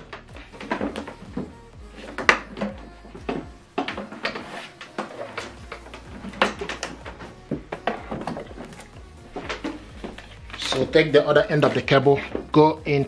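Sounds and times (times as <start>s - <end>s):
cable dragged across table: 4.1s - 6.5s.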